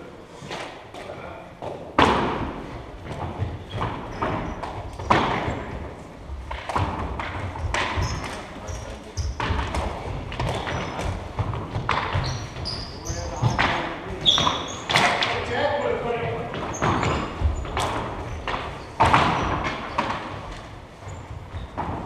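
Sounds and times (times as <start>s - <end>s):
sneakers squeaking on floor: 0.4s - 22.0s
hockey sticks knocking on wooden floor: 0.5s - 22.0s.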